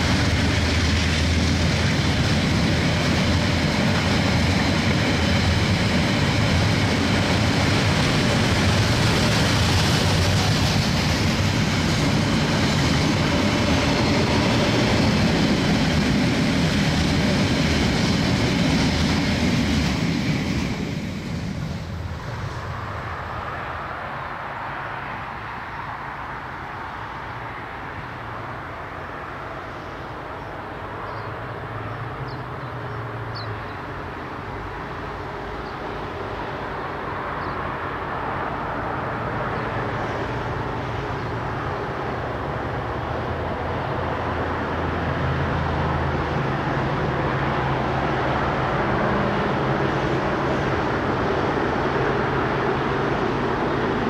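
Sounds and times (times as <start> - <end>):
locomotive engine droning: 0.0 - 23.5.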